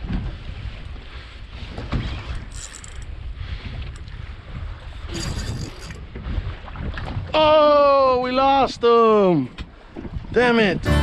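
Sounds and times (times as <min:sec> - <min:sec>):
wind buffeting microphone: 0:00.0 - 0:10.9
choppy water against boat hull: 0:00.0 - 0:11.0.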